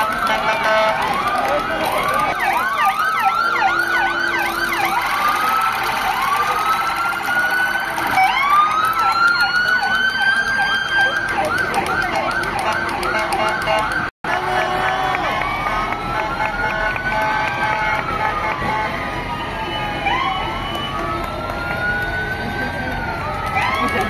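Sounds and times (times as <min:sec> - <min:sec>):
sirens wailing: 0:00.0 - 0:24.0
sirens yelping: 0:00.0 - 0:24.0.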